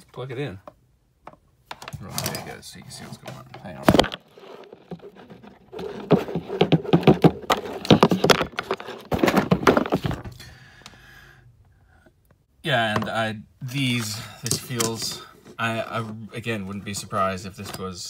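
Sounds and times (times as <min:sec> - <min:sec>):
phone handling rubbing: 0:01.7 - 0:10.3.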